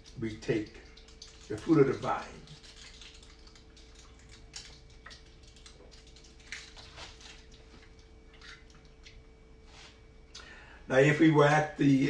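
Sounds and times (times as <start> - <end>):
plastic cups clicking and crinkling: 0.0 - 9.2
faint steady hum: 0.0 - 12.0.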